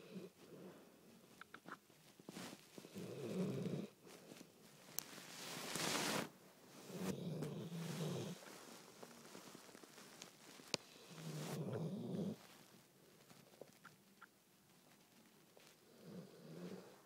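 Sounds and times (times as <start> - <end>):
dog grumbling in sleep: 2.8 - 4.0, 6.8 - 8.4, 11.0 - 12.5, 15.8 - 17.0.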